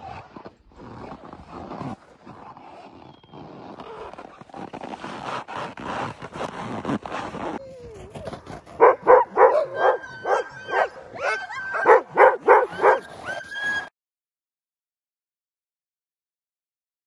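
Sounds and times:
thin dog whine: 7.6s - 13.9s
dogs barking and yelping: 8.2s - 13.9s
sharp high dog yips: 8.8s - 13.9s.

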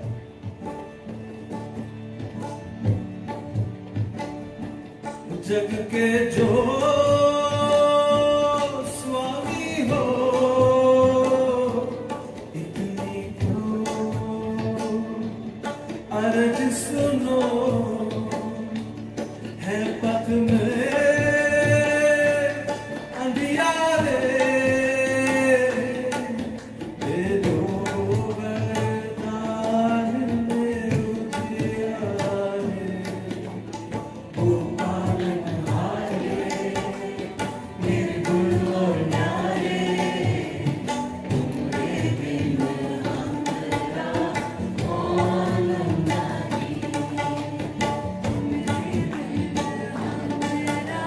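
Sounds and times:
acoustic guitar: 0.0s - 51.0s
harmonium: 0.0s - 51.0s
tabla: 0.0s - 51.0s
voices singing held notes: 34.3s - 51.0s.

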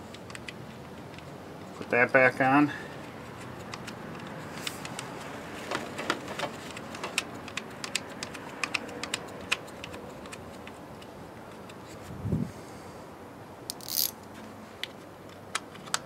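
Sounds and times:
socket ratchet clicking: 13.7s - 14.2s.

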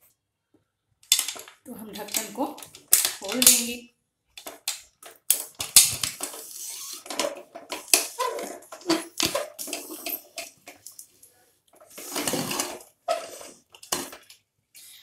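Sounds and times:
metal lid scraping and clanking: 11.9s - 13.6s.

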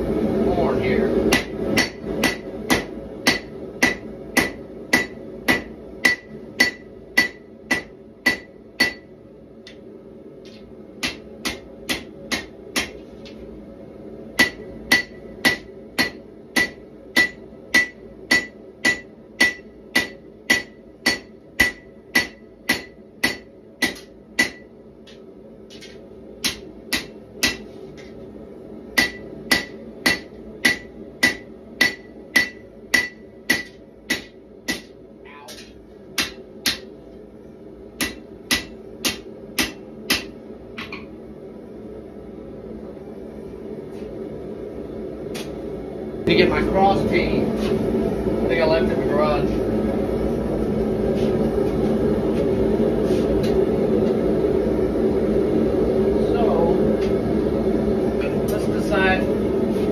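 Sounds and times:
hammer striking steel on anvil: 1.3s - 9.1s, 10.5s - 13.0s, 14.4s - 27.7s, 29.0s - 36.9s, 38.0s - 41.1s.

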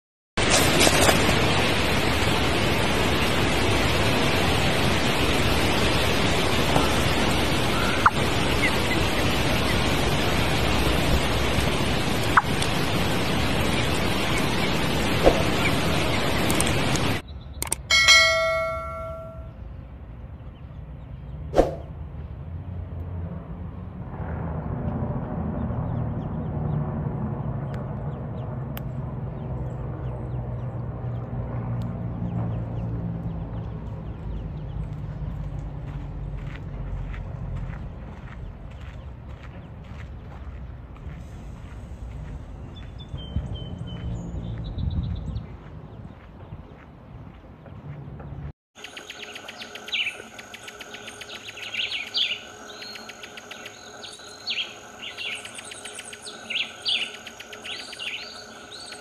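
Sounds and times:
sharp clicks: 16.4s - 17.9s
steady low rumble: 23.6s - 48.5s.

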